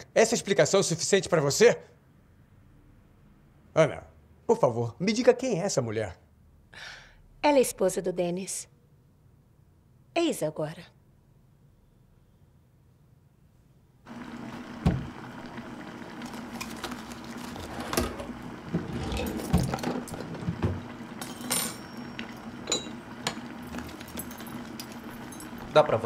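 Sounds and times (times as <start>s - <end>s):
drawer opening: 16.6s - 21.8s
china cups clinking: 21.1s - 25.7s.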